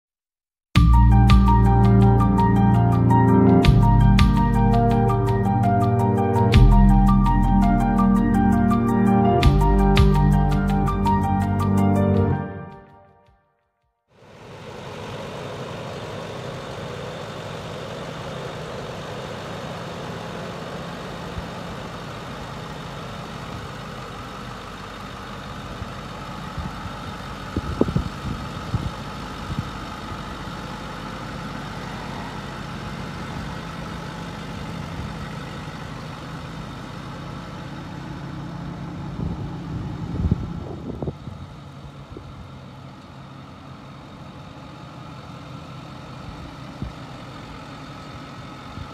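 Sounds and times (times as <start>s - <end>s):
diesel engine idling: 0.8s - 12.7s, 14.2s - 48.9s.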